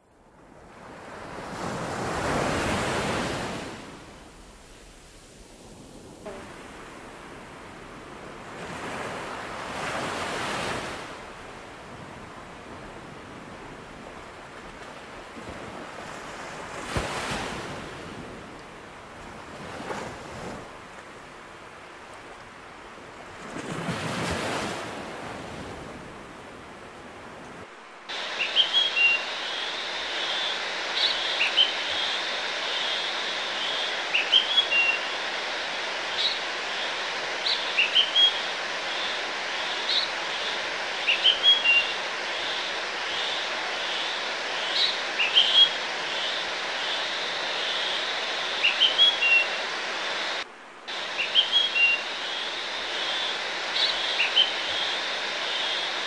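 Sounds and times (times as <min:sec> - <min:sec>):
ocean waves washing in: 0:00.0 - 0:56.0
steady hiss: 0:27.6 - 0:56.0
birds chirping: 0:28.1 - 0:56.0.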